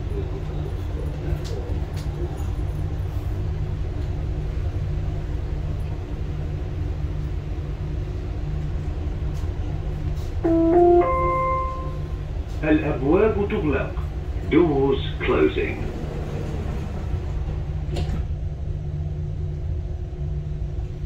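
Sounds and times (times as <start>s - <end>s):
faint hum inside carriage: 0.0s - 21.0s
metro train rumbling: 0.0s - 21.0s
rising onboard chime: 10.4s - 12.3s.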